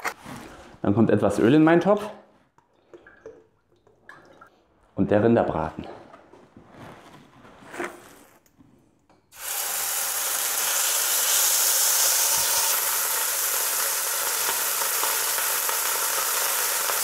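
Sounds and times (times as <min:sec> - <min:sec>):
meat sizzling in hot oil: 0:09.4 - 0:17.0.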